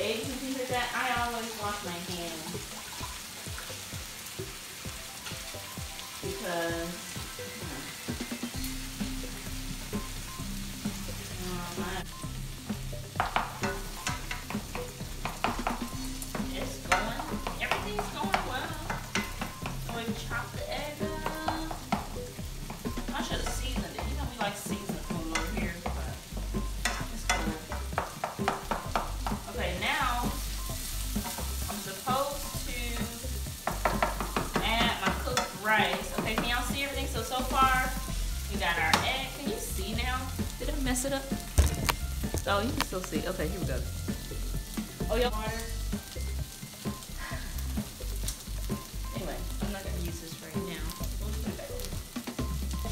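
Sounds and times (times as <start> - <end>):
vegetables sizzling in a skillet: 0.0 - 52.9
spatula scraping and tapping pan: 13.1 - 20.3, 21.2 - 29.5, 30.4 - 31.8, 32.6 - 36.7.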